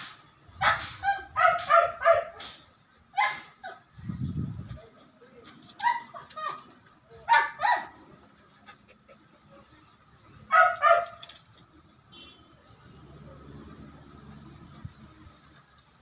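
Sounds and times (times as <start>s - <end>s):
dog barking: 0.6s - 3.8s, 7.3s - 8.0s, 10.5s - 11.2s
wind rumble on microphone: 3.9s - 4.9s.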